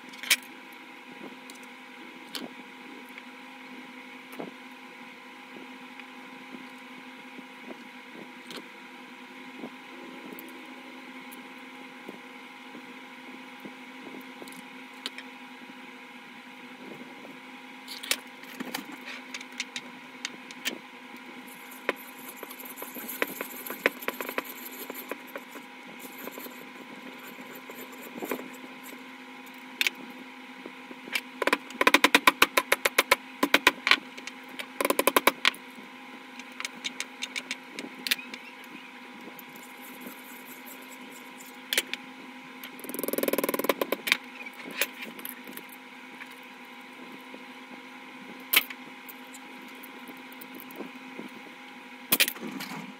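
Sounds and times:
steady hum: 0.0 - 52.9.

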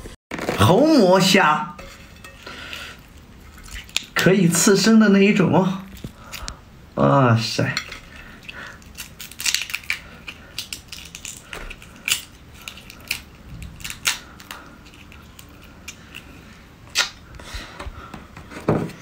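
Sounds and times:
shrimp shell cracking: 2.6 - 4.2, 5.8 - 6.6, 7.8 - 17.2.

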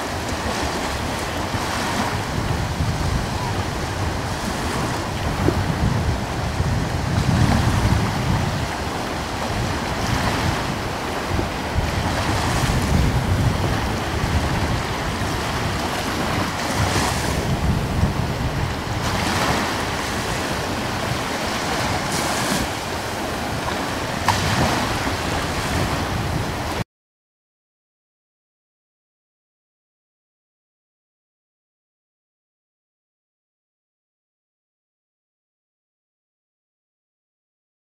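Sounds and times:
gusty wind buffeting microphone: 0.0 - 26.8.

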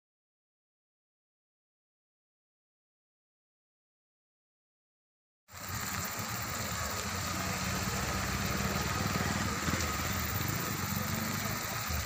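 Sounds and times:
engine running: 5.5 - 12.0
steady hiss: 5.5 - 12.0.

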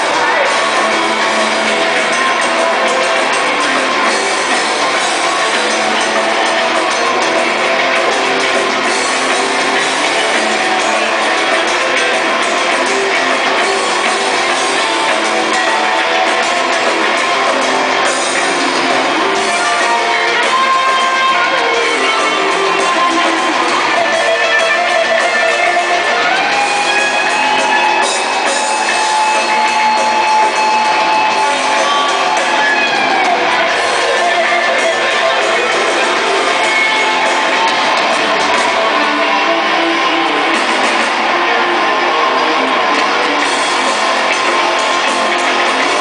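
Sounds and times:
electric guitar bending lead notes: 0.0 - 46.0
heavy metal band playing: 0.0 - 46.0.

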